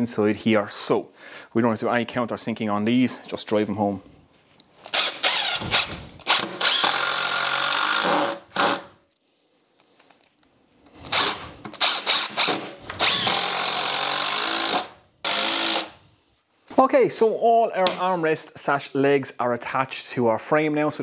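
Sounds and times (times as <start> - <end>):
cordless screwdriver driving screws: 4.8 - 8.8, 11.0 - 16.0.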